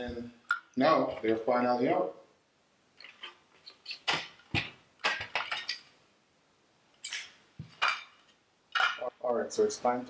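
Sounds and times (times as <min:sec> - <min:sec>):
plastic parts clicking and knocking: 0:03.0 - 0:05.8.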